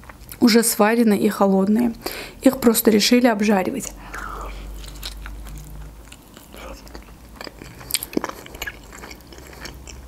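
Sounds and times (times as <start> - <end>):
wet chewing clicks: 4.1 - 10.0
crunching bite: 4.8 - 10.0.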